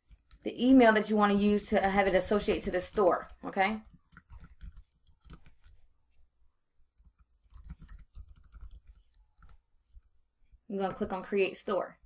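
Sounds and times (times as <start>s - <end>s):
computer keyboard typing: 0.0s - 0.5s, 1.2s - 5.8s, 6.9s - 10.1s.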